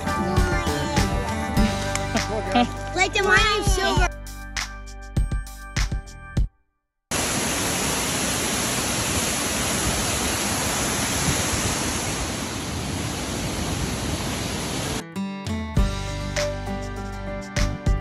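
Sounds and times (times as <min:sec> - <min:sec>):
background music: 0:00.0 - 0:06.5, 0:15.0 - 0:18.0
waterfall rushing: 0:07.1 - 0:15.0.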